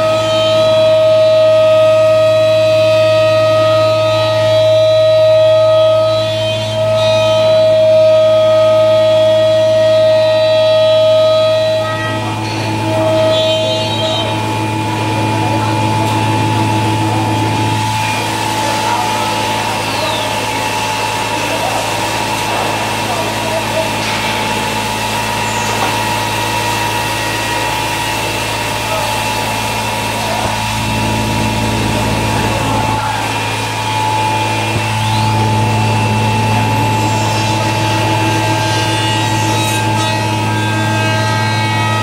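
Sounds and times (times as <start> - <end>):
cnc router hum and whine: 0.0 - 42.0
falling whine: 0.0 - 42.0.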